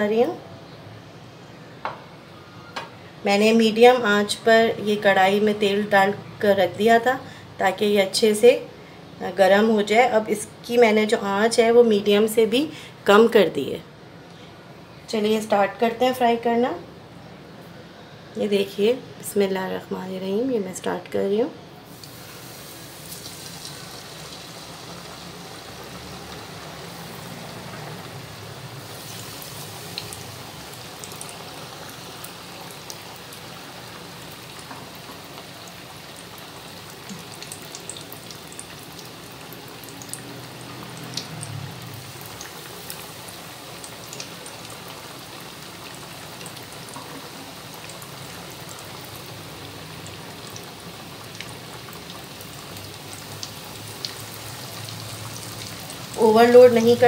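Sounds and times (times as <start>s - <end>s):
chicken deep-frying in oil: 20.1s - 57.0s
oil popping and crackling: 21.9s - 57.0s.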